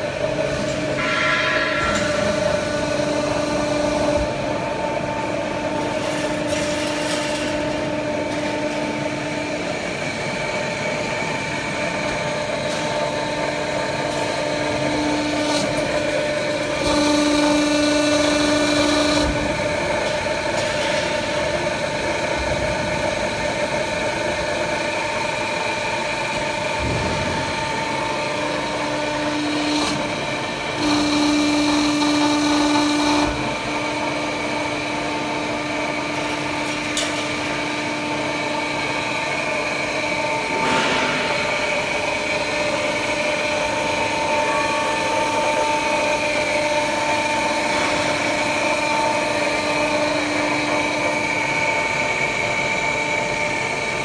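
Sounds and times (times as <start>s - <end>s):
welding machine hum: 1.6s - 54.0s.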